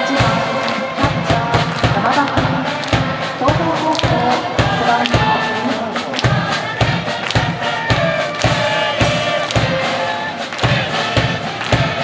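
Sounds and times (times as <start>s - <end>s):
band playing: 0.0s - 12.0s
crowd singing a cheer song: 0.0s - 12.0s
drum beating steadily: 0.0s - 12.0s.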